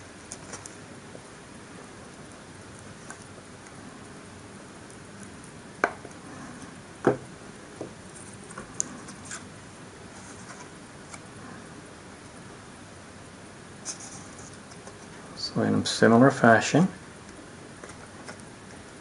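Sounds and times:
steady low hiss: 0.0s - 19.0s
knocks on a tabletop: 7.0s - 7.2s.

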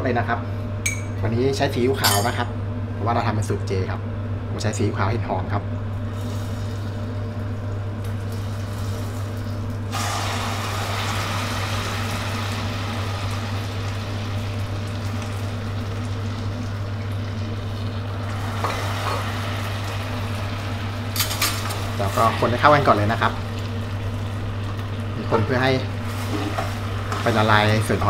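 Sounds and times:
steady low hum: 0.0s - 28.0s
sauce sizzling in hot pot: 9.9s - 28.0s.

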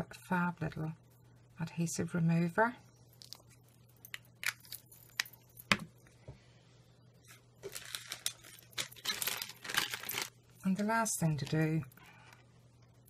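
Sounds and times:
rustling and crinkling handling: 7.3s - 12.3s.

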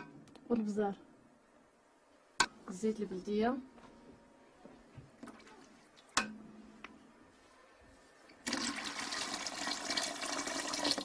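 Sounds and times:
water pouring into a metal pot: 8.4s - 11.0s.

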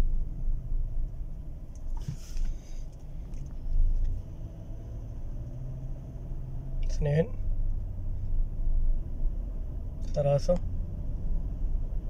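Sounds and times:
engine low rumble: 0.0s - 12.0s
short hiss: 1.9s - 2.9s.

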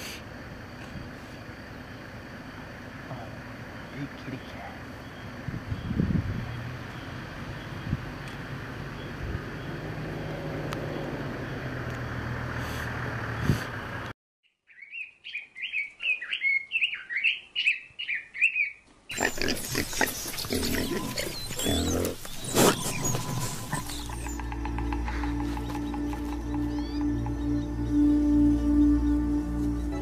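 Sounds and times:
animal chirping squeals: 18.4s - 26.0s
noisy rumble: 19.1s - 30.0s.

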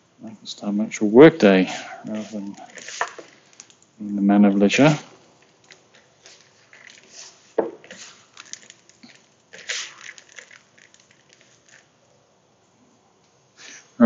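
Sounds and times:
fingers rubbing crumble mixture: 1.6s - 11.9s.

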